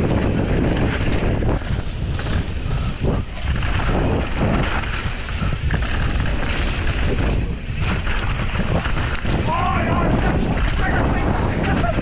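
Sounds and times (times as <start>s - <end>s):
bike knocking and rattling: 0.0s - 12.0s
tyres on loose dirt: 0.0s - 12.0s
wind buffeting microphone: 0.0s - 12.0s.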